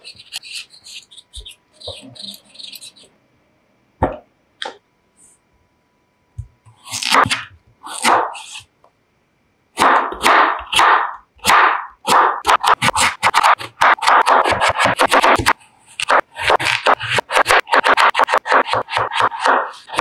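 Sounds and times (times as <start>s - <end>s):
knife chopping on wooden board: 6.9s - 8.6s, 9.8s - 20.0s.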